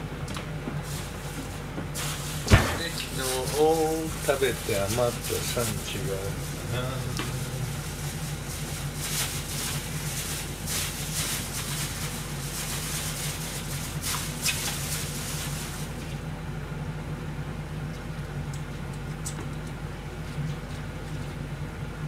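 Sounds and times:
low hum: 0:00.0 - 0:12.7
rustling: 0:00.8 - 0:16.2.

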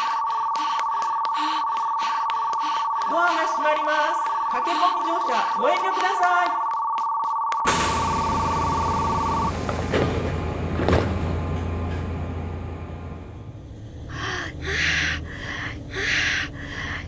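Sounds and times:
woman panting: 0:00.0 - 0:06.3, 0:14.0 - 0:17.0
two-tone door warning chime: 0:02.8 - 0:09.8
train clunks: 0:07.7 - 0:13.5
low train rumble: 0:07.7 - 0:17.0.

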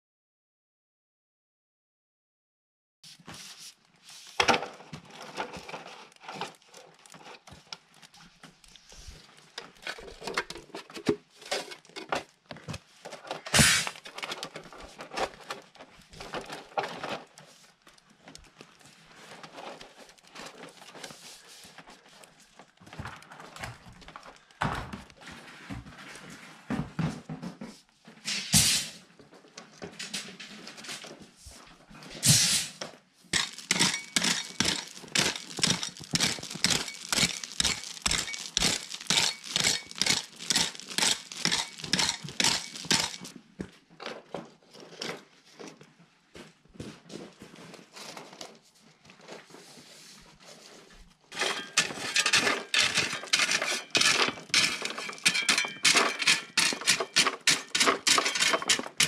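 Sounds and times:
gravel crunching: 0:33.4 - 0:43.3.

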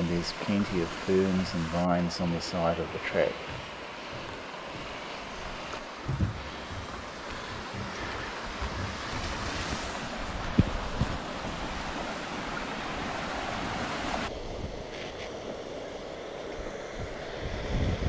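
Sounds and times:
wind buffeting microphone: 0:02.6 - 0:14.9, 0:17.0 - 0:18.0.

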